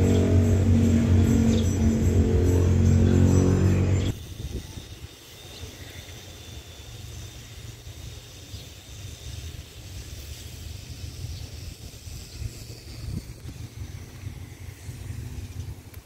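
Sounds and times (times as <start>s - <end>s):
wind buffeting microphone: 3.9s - 5.1s, 11.0s - 16.0s
faint outdoor hiss: 4.1s - 16.0s.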